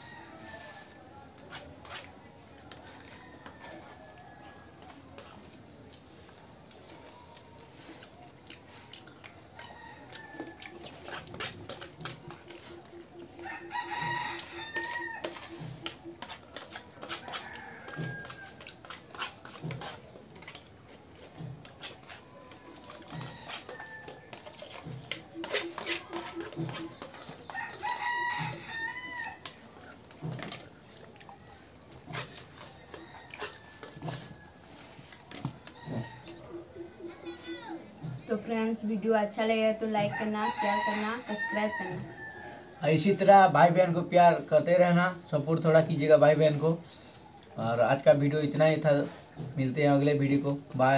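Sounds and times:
rooster crowing: 0.0s - 1.1s, 9.6s - 11.0s, 13.3s - 15.8s, 17.0s - 18.8s, 22.1s - 29.6s, 32.1s - 37.6s, 40.0s - 42.9s
spoons clicking on plates: 4.7s - 36.4s.

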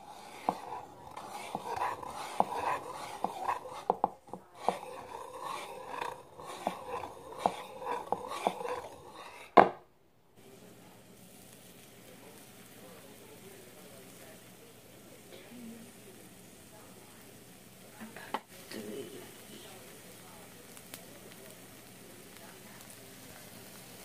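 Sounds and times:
batter hissing on griddle: 0.0s - 9.6s, 10.4s - 24.0s
whisk beating batter in bowl: 0.0s - 9.6s.

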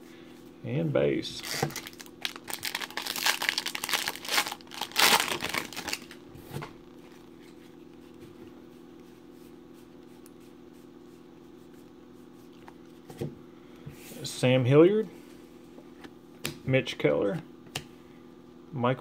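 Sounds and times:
low steady hum: 0.0s - 19.0s
foil wrapper crinkling and tearing: 1.4s - 6.2s.

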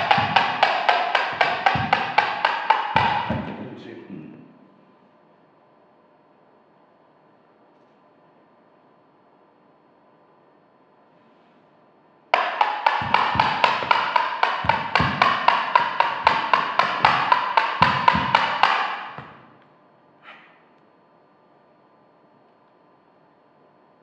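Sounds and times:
deep drum hits: 0.0s - 3.8s, 12.4s - 19.6s
sharp pitched percussion strokes: 0.0s - 3.8s, 12.4s - 19.5s.

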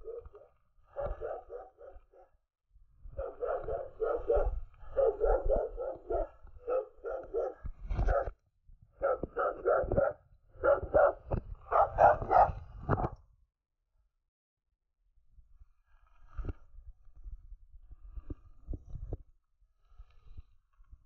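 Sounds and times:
dog barking: 0.0s - 2.3s, 3.2s - 8.3s, 9.0s - 13.1s.

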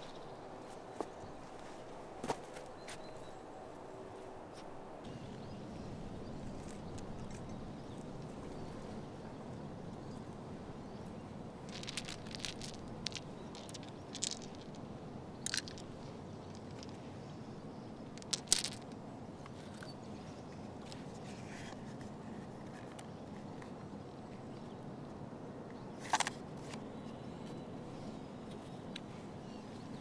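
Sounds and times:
plastic cubes clicking: 11.7s - 14.8s, 15.4s - 17.0s, 18.1s - 18.9s.

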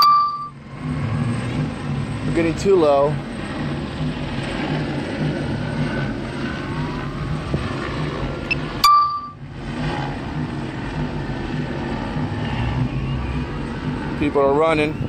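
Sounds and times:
short high electronic beep: 0.0s - 0.6s, 8.8s - 9.4s
low hum: 0.0s - 14.3s
street traffic noise: 0.0s - 15.0s.

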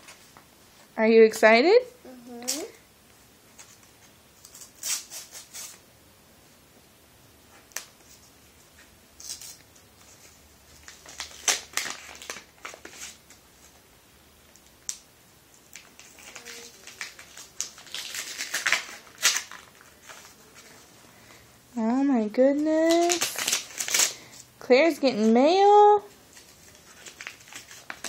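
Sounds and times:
paper envelope tearing: 4.4s - 5.8s, 10.8s - 13.2s, 15.7s - 20.7s, 22.8s - 24.3s, 26.4s - 28.0s.

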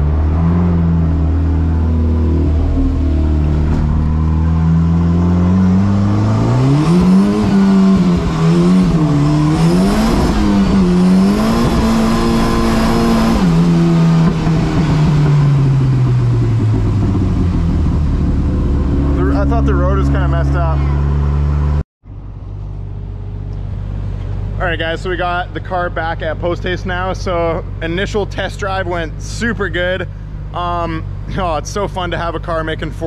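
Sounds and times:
car engine revving: 0.0s - 21.8s.

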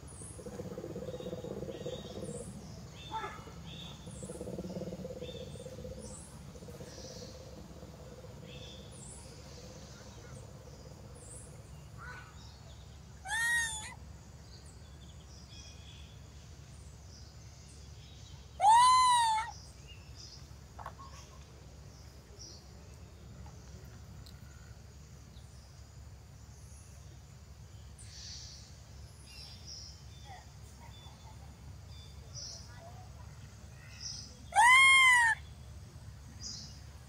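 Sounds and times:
faint chirps: 0.0s - 25.8s, 26.4s - 37.0s
outdoor background noise: 0.0s - 37.0s
monkey wailing cries: 13.2s - 14.0s, 18.6s - 19.5s, 34.5s - 35.4s.

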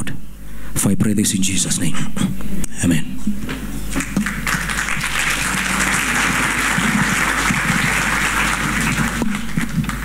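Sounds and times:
congregation applauding: 3.9s - 10.0s.

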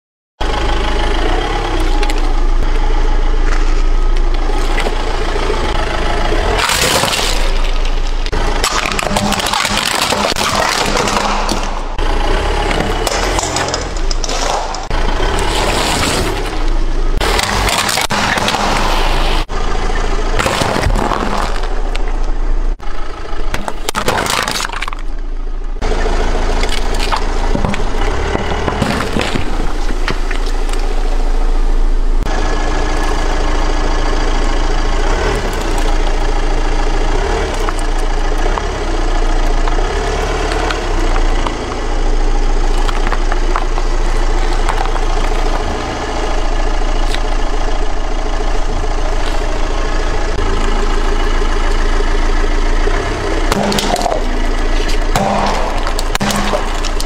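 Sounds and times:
tyre crushing plastic: 6.6s - 12.0s, 20.4s - 22.1s, 23.5s - 25.1s, 26.6s - 31.0s, 53.5s - 57.0s.

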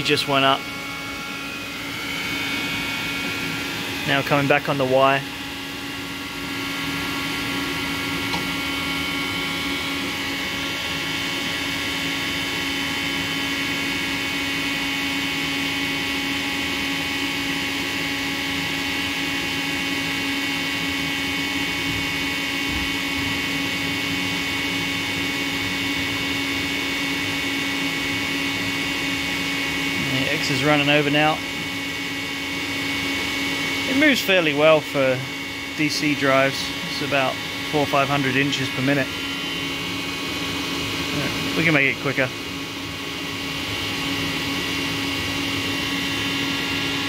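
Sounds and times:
servo drive mechanical whine: 5.5s - 12.3s.

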